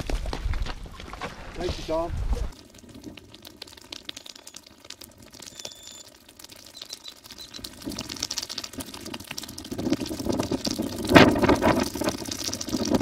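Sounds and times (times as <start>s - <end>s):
hoof falls on dirt: 0.0s - 2.5s
wind buffeting microphone: 9.6s - 13.0s.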